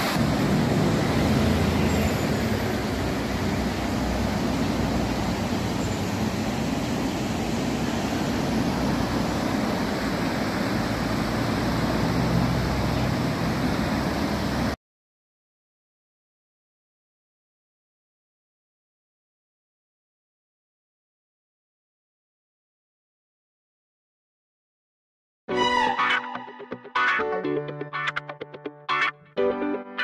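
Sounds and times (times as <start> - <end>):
stream rushing: 0.0 - 14.8.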